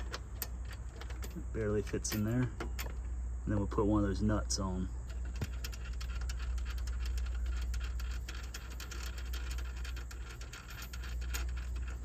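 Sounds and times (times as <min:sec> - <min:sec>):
metallic clicks of nut turning: 0:00.0 - 0:03.1, 0:05.0 - 0:12.0
steady low hum: 0:00.0 - 0:12.0.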